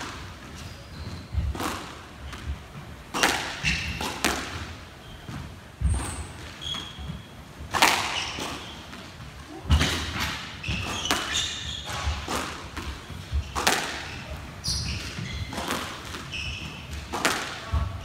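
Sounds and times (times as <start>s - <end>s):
shoes squeaking on wooden floor: 0.0s - 4.2s, 4.8s - 18.0s
squash ball cracking off rackets: 3.1s - 4.6s, 7.7s - 8.6s, 9.7s - 14.2s, 16.9s - 17.9s.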